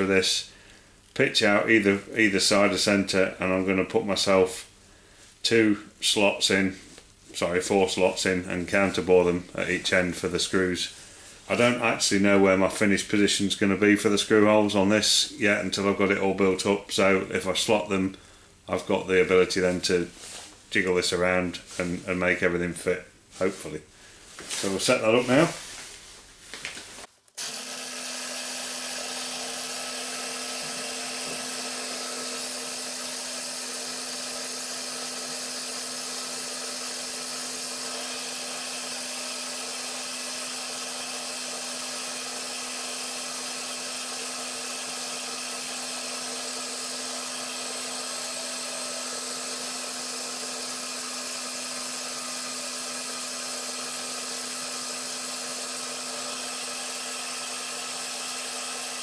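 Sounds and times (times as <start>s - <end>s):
milling machine spindle hum: 27.2s - 59.0s.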